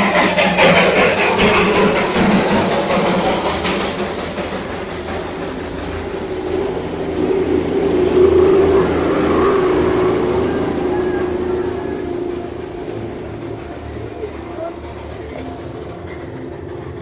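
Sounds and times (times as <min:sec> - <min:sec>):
carriages rumbling past: 0:00.0 - 0:17.0
steady whining tone: 0:00.0 - 0:17.0
steam locomotive chuffing: 0:00.0 - 0:17.0.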